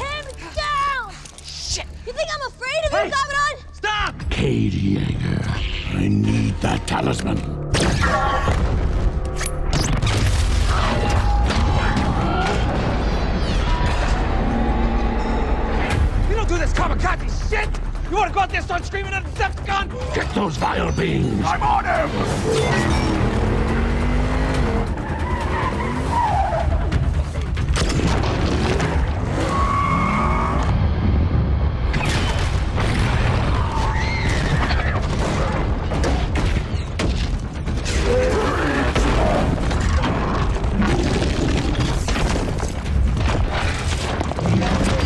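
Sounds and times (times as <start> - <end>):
action film music: 0.0 - 45.0
car tyres skidding: 25.1 - 26.9
explosions: 31.0 - 36.0.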